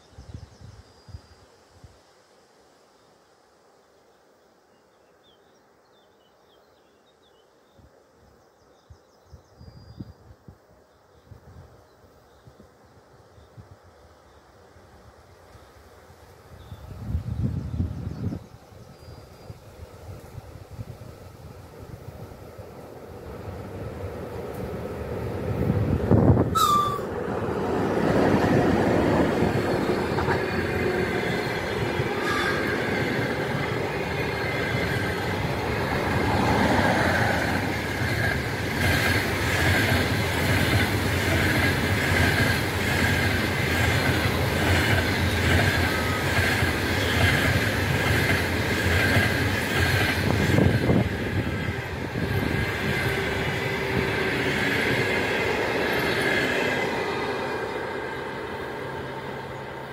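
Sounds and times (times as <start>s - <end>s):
electric locomotive passing: 15.8s - 59.9s
high wheel squeal: 26.5s - 27.1s, 31.6s - 33.2s
train wheels clickety-clack on rails: 27.8s - 57.6s.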